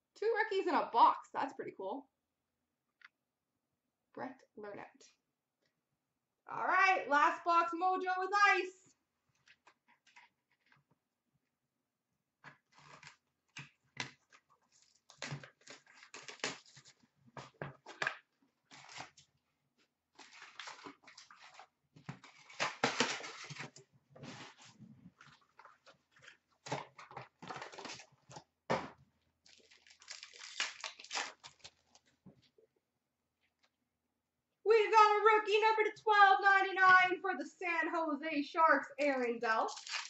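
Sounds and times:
wrapper crinkling and tearing: 0:14.8 - 0:16.9, 0:18.7 - 0:19.2, 0:20.2 - 0:23.7, 0:29.4 - 0:32.1, 0:39.7 - 0:40.0.

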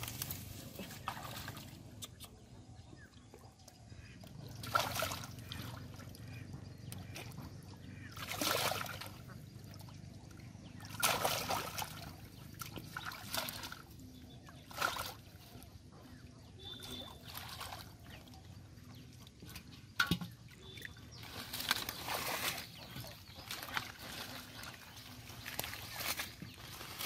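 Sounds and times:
hands splashing in shallow water: 0:04.6 - 0:05.8, 0:08.2 - 0:09.2, 0:10.8 - 0:13.8.

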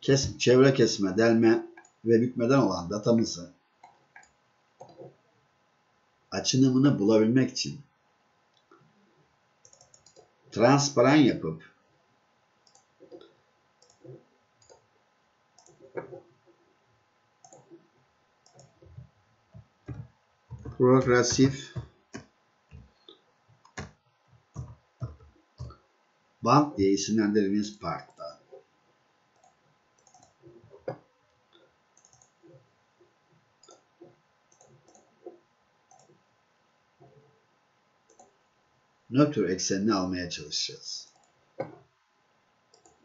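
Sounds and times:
computer mouse clicks: 0:03.8 - 0:05.2, 0:09.6 - 0:10.4, 0:12.6 - 0:14.9, 0:15.6 - 0:16.3, 0:17.4 - 0:17.8, 0:18.4 - 0:25.8, 0:29.4 - 0:32.6, 0:33.6 - 0:36.2, 0:38.1 - 0:38.4, 0:41.1 - 0:41.9, 0:42.7 - 0:43.0.

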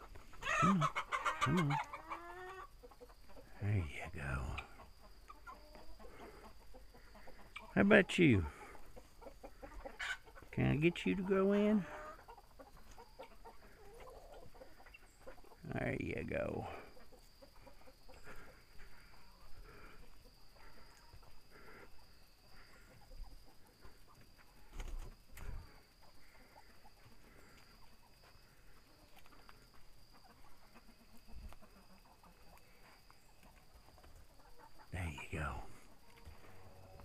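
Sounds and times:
chickens clucking softly: 0:00.0 - 0:37.0.

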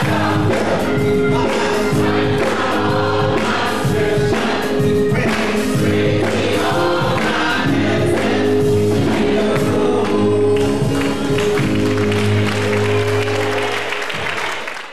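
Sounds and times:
drum strikes: 0:00.0 - 0:09.9
choir singing: 0:00.0 - 0:13.9
bass sustained notes: 0:00.0 - 0:14.3
keyboard: 0:00.0 - 0:14.9.

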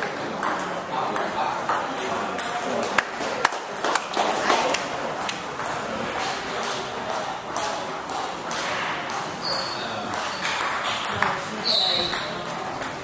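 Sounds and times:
distant ping-pong hits: 0:00.0 - 0:13.0
table tennis ball clicking: 0:04.7 - 0:13.0.

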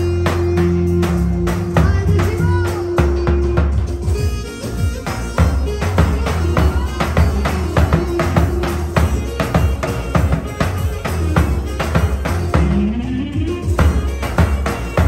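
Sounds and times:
folk band playing: 0:00.0 - 0:15.0
keyboard: 0:00.0 - 0:15.0
large drum beating: 0:05.4 - 0:15.0.

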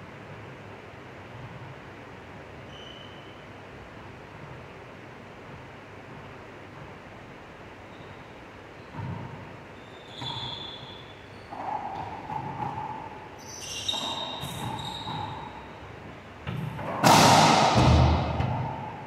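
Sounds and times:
court shoes squeaking: 0:02.4 - 0:04.7, 0:07.7 - 0:19.0
loud ball strike echoing: 0:16.4 - 0:19.0.

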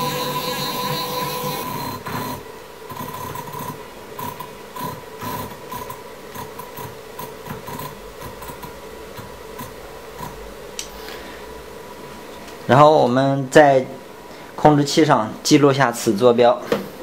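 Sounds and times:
stepper motors whining: 0:00.0 - 0:06.0.

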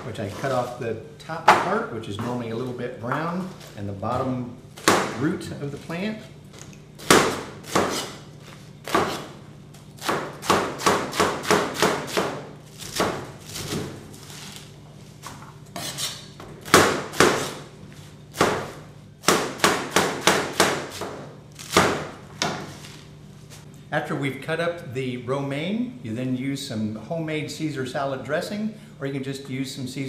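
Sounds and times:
knife chopping on plastic board: 0:10.0 - 0:14.0.

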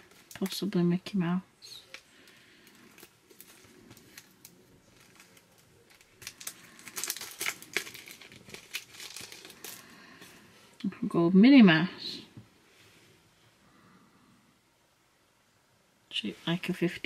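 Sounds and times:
plastic packaging crinkling: 0:00.0 - 0:00.7, 0:01.6 - 0:10.5.

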